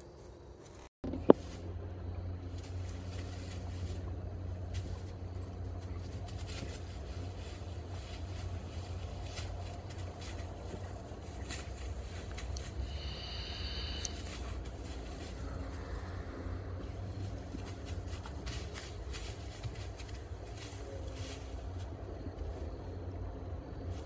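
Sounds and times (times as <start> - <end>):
distant traffic rumble: 0.0 - 24.0
dry leaves rustling: 0.6 - 22.9.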